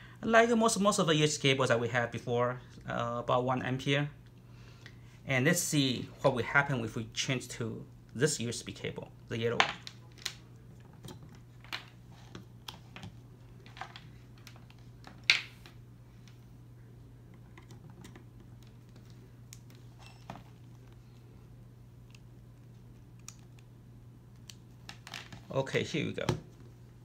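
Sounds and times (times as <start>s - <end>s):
cable plugs clicking and rattling: 17.4s - 19.8s.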